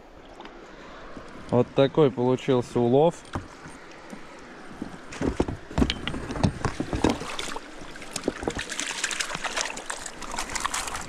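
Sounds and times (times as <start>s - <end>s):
water sloshing and splashing: 0.0s - 11.0s
knocks and rustles: 4.8s - 11.0s.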